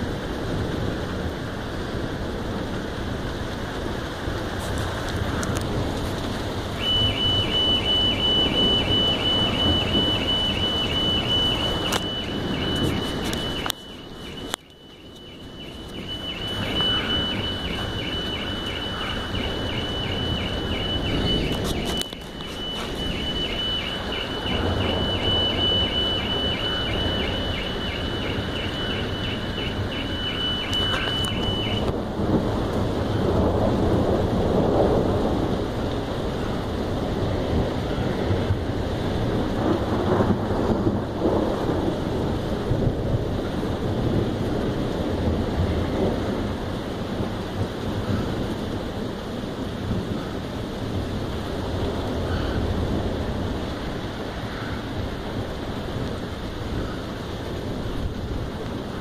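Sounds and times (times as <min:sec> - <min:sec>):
heavy rain hissing: 0:00.0 - 0:59.0
car alarm beeping: 0:06.7 - 0:31.9.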